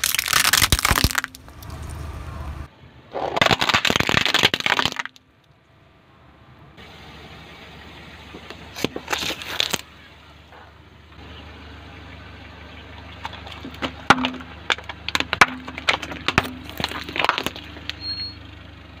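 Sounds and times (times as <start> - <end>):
plastic cups cracking and popping: 0.0 - 1.9, 3.2 - 5.3, 8.8 - 9.8, 13.2 - 18.0.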